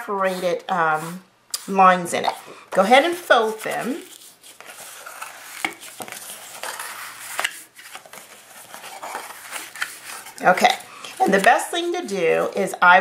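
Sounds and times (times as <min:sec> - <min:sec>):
paper rustling and rubbing: 0:02.9 - 0:12.5
paper crackling: 0:03.4 - 0:11.7.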